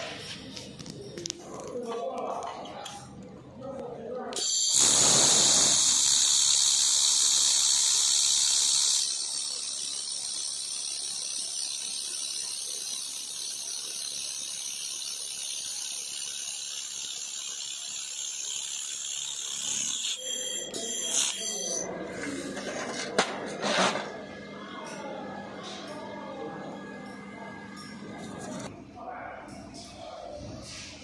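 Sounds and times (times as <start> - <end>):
laser welder hissing: 4.4 - 11.2.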